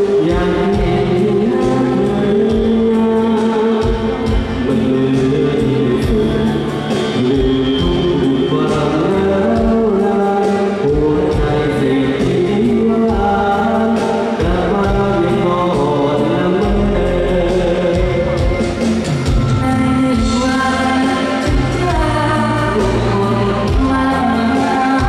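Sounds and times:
men singing together: 0:00.0 - 0:18.5
music with steady beat: 0:00.0 - 0:25.0.

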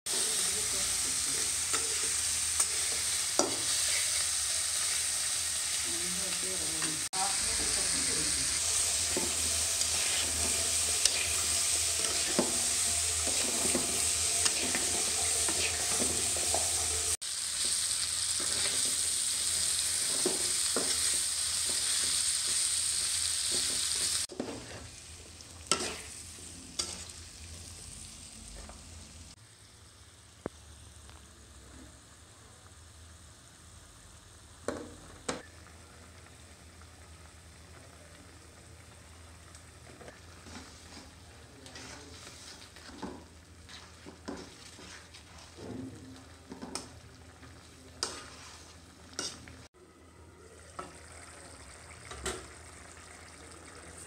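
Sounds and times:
oil sizzling in a pan: 0:00.1 - 0:54.0
spatula scraping and tapping pan: 0:02.6 - 0:04.2, 0:09.0 - 0:17.8, 0:20.0 - 0:22.6, 0:23.5 - 0:24.9, 0:25.7 - 0:26.1, 0:39.9 - 0:45.7, 0:48.0 - 0:49.5.

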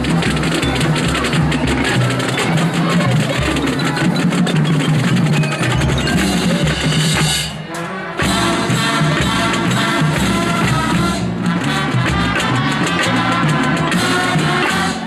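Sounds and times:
marching band playing: 0:00.0 - 0:15.0.

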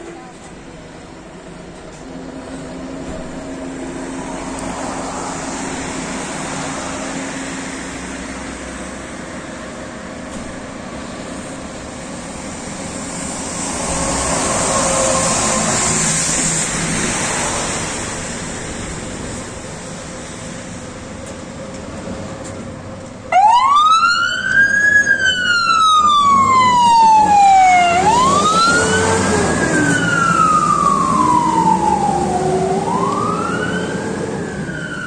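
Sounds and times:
vehicle noise: 0:00.0 - 0:35.0
fire engine siren wailing: 0:13.0 - 0:19.4, 0:23.3 - 0:35.0.

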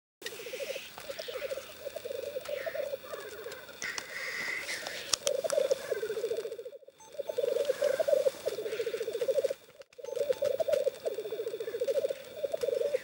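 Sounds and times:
grouse bubbling coo: 0:00.2 - 0:13.0.

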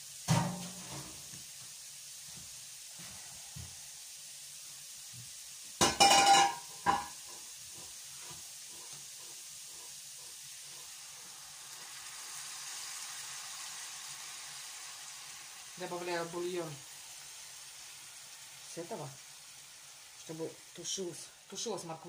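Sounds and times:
carrots sizzling in a pan: 0:00.0 - 0:22.0
metallic clatter of cookware: 0:05.8 - 0:07.2.

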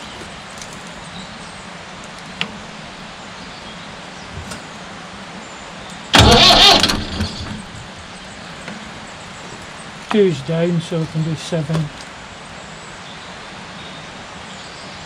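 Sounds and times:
sharp click: 0:06.2 - 0:07.8
starter motor cranking engine: 0:06.2 - 0:08.1.

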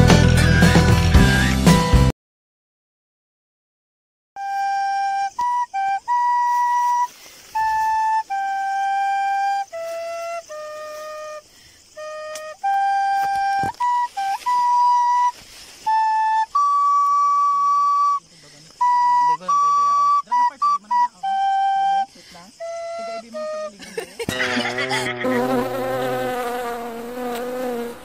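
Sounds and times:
recorder playing slow tune: 0:04.4 - 0:18.2, 0:18.8 - 0:23.7.

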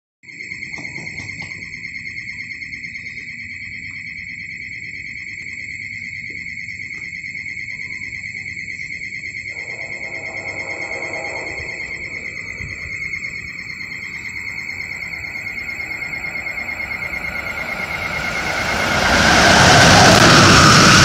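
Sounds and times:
high-pitched pulsing trilling tone: 0:09.5 - 0:21.0
low rumble: 0:09.5 - 0:21.0.

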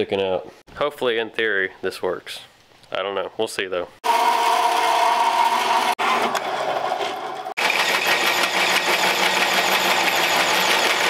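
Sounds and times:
bandsaw whining: 0:04.0 - 0:11.0
drill grinding into metal tube: 0:04.0 - 0:11.0.

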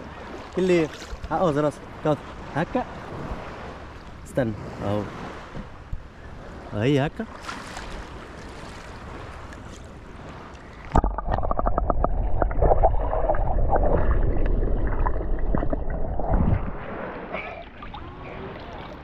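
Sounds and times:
muffled underwater sloshing: 0:00.0 - 0:19.0
low rumble: 0:11.0 - 0:17.2.

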